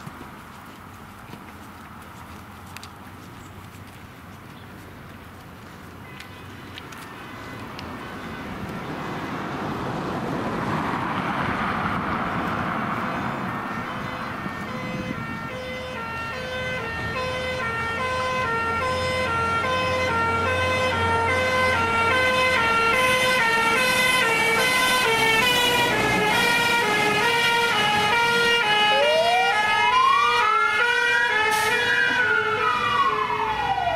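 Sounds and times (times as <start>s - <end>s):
engine and road noise: 0.0s - 33.9s
two-tone fire engine siren: 10.9s - 33.9s
wailing siren: 10.9s - 33.9s.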